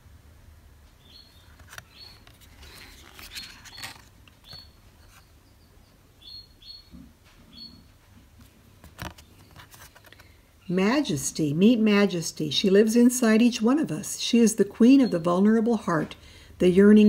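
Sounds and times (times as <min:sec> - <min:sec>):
cards rustling and tapping: 0:01.5 - 0:05.2, 0:08.8 - 0:10.3.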